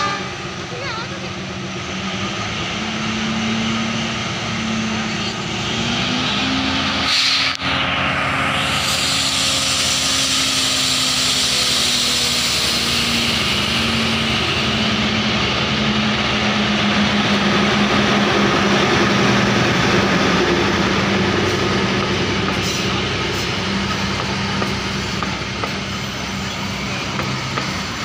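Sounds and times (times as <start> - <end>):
locomotive engine drone: 0.0 - 28.0
hiss: 8.5 - 14.8.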